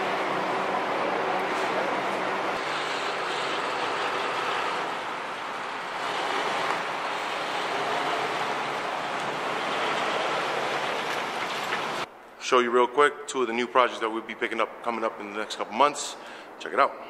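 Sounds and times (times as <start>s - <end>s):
tow truck engine running: 0.0s - 12.1s
traffic rushing: 0.0s - 12.1s.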